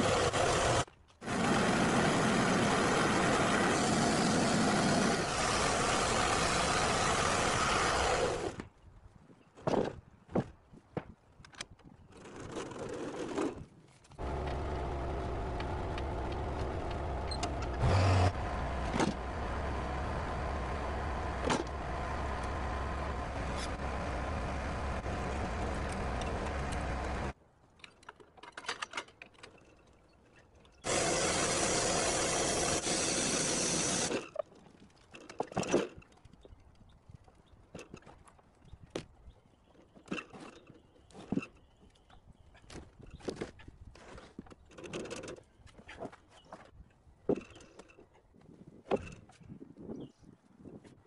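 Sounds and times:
small gasoline engine running: 0.0s - 8.6s, 14.2s - 27.3s, 30.8s - 34.2s
loud hiss: 30.9s - 34.1s.

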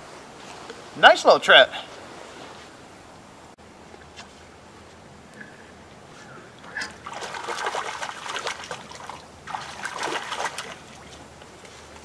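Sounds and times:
fish splashing in water: 6.7s - 11.3s.

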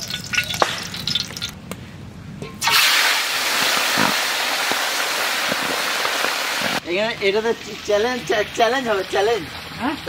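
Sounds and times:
oil pouring into a wok: 2.6s - 3.7s
fish sizzling in hot oil: 2.6s - 6.8s.

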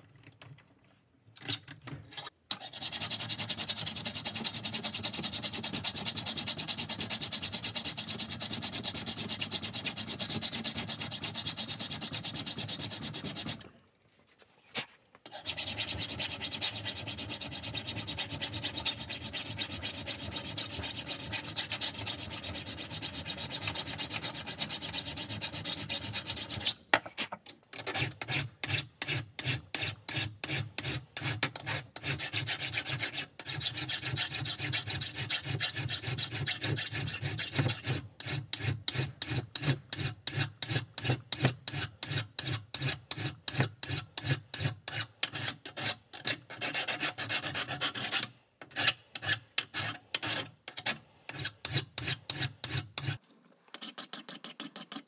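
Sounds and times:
hand file scraping metal: 1.5s - 13.7s, 15.3s - 55.0s.

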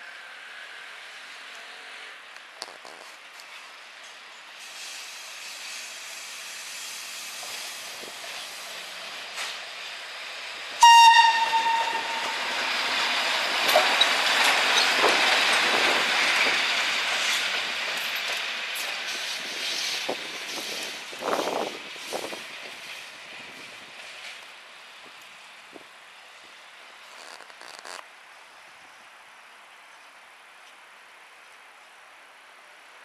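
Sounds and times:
train wheels rumbling on rails: 4.0s - 25.9s
train horn blast: 10.8s - 12.7s.

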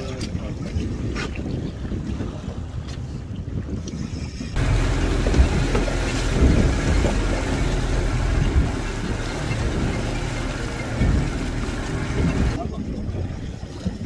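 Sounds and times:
rush of boat wake: 4.3s - 14.0s
outboard motor drone: 4.6s - 12.6s.

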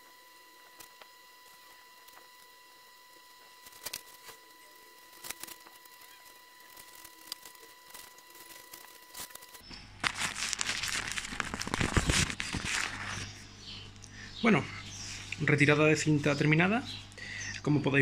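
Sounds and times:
masking tape peeling off glass: 3.5s - 4.4s, 5.0s - 13.0s.

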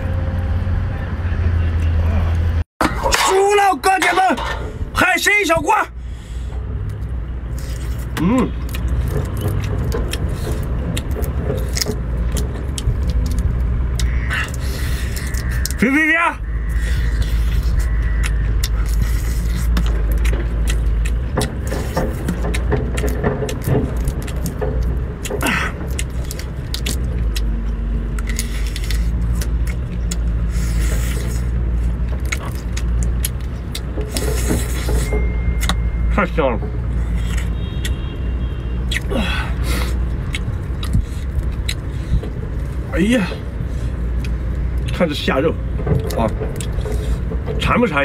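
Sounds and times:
steady low rumble: 16.4s - 48.0s
chewing close to microphone: 16.7s - 35.0s, 38.9s - 42.8s.

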